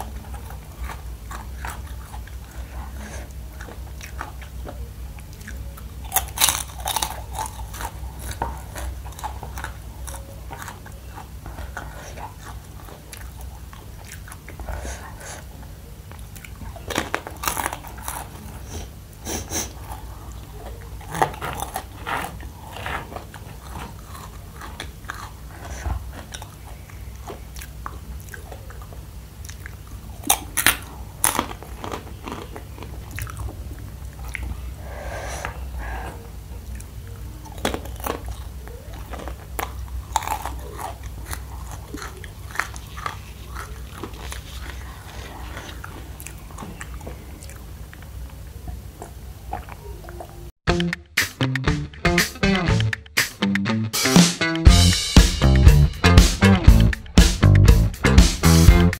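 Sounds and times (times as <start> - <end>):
crunching and chewing snack: 0.0 - 50.5
steady low hum: 0.0 - 51.0.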